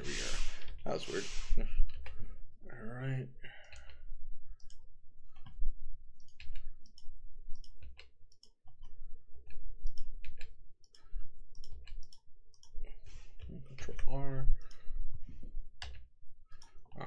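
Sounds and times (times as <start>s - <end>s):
computer mouse clicking: 1.8s - 2.2s, 3.6s - 4.0s, 4.6s - 14.9s, 15.8s - 17.0s
keyboard keys clicking: 6.2s - 12.8s.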